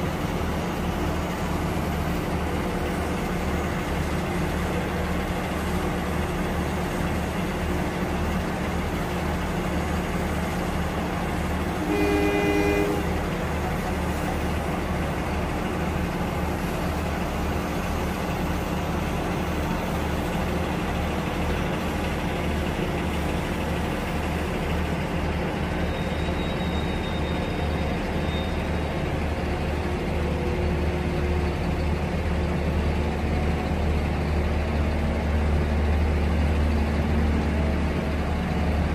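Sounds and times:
diesel engines idling: 0.0s - 38.9s
train horn toot: 11.8s - 13.4s.

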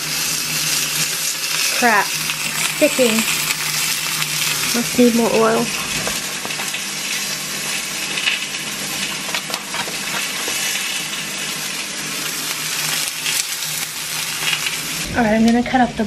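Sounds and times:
fish sizzling in oil: 0.0s - 15.6s.

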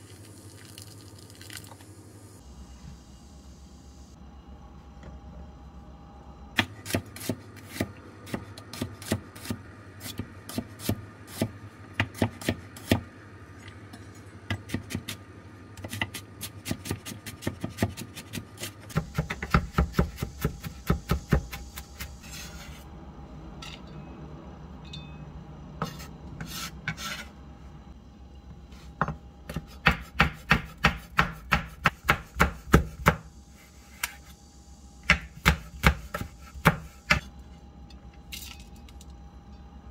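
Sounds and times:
knife chopping on cutting board: 6.6s - 13.0s, 15.8s - 22.1s, 29.0s - 33.3s, 35.0s - 37.3s.

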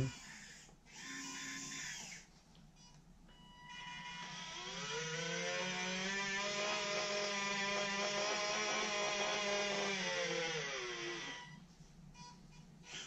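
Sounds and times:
small electric motors whining: 0.0s - 2.3s, 3.6s - 11.6s.

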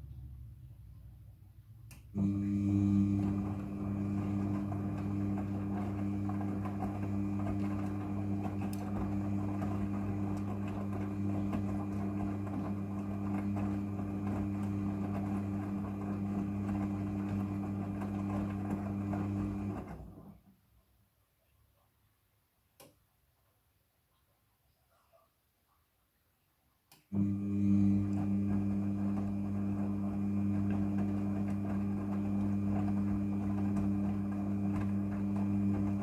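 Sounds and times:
washing machine drum motor hum: 2.1s - 20.4s, 27.2s - 36.0s.

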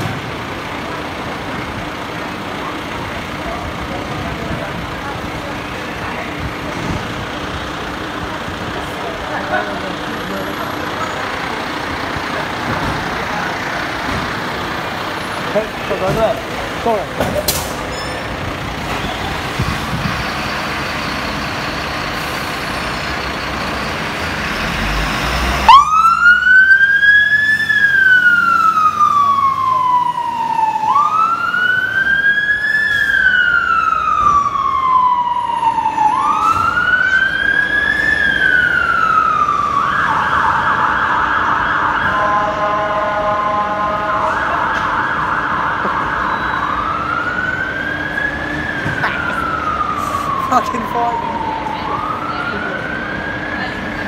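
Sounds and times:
diesel engine running: 0.0s - 54.0s
two-tone siren wailing: 25.4s - 54.0s.

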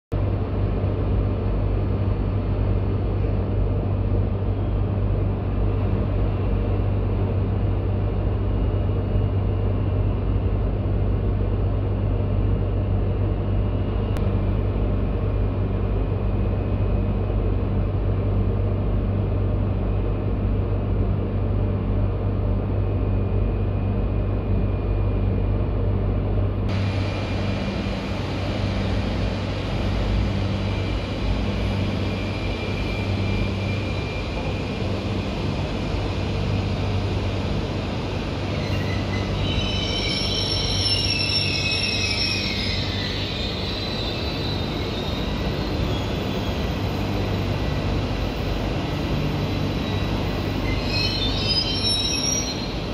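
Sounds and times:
train hum and rumble: 0.1s - 52.9s
train wheels squealing: 30.3s - 35.6s, 38.5s - 47.5s, 48.2s - 52.9s.

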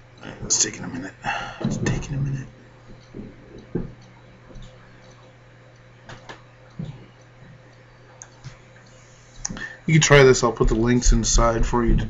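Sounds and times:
low electrical hum: 0.0s - 12.0s
faint clicks and knocks: 1.6s - 9.6s.

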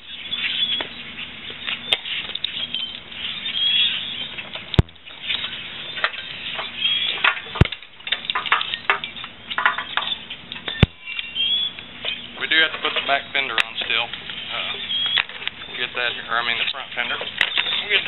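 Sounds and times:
sharp clicks: 4.7s - 5.1s.

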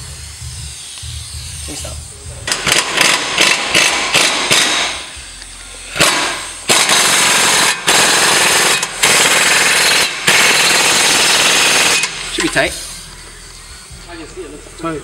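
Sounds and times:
impact wrench hammering: 2.4s - 5.2s, 5.9s - 12.6s.

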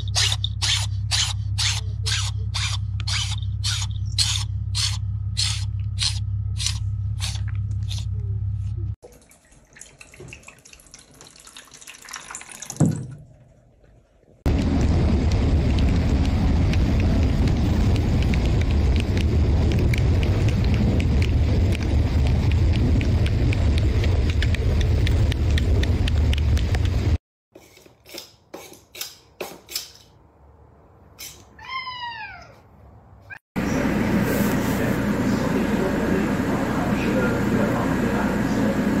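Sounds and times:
loud steady rumbling: 0.1s - 9.0s, 14.5s - 27.2s, 33.6s - 39.0s
cat meowing: 31.6s - 32.7s.

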